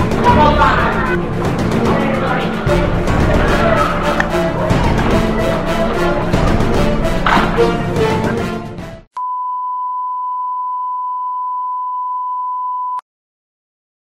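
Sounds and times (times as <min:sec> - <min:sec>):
background music: 0:00.0 - 0:09.2
steady high test tone beep: 0:09.2 - 0:13.0.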